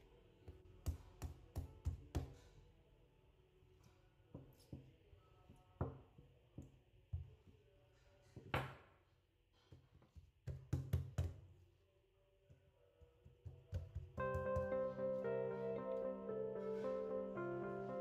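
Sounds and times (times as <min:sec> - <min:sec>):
rolling pin knocking on dough: 0:10.2 - 0:11.5, 0:13.2 - 0:14.8.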